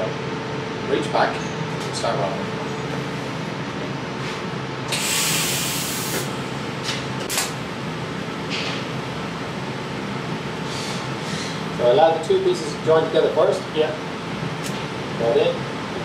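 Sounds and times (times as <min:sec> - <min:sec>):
steady hum: 0:00.0 - 0:16.0
welding arc hiss: 0:04.9 - 0:06.5.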